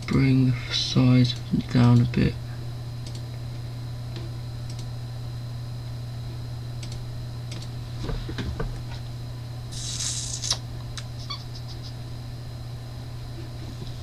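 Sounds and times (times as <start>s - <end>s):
computer mouse clicks: 6.8s - 7.7s.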